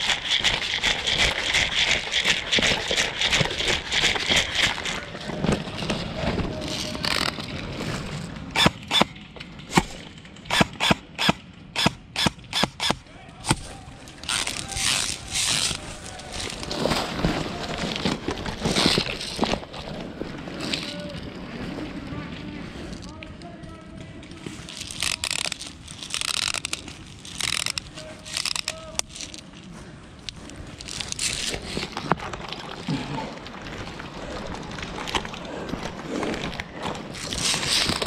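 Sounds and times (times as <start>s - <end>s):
airsoft gun shots: 9.7s - 13.7s
rustling movement: 13.4s - 23.2s, 24.3s - 32.9s, 35.5s - 38.0s.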